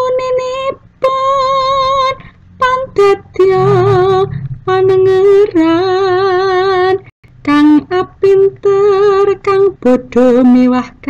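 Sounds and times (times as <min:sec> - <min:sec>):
woman singing with vibrato: 0:00.0 - 0:11.0
singer breathing: 0:02.2 - 0:02.6, 0:04.2 - 0:04.7.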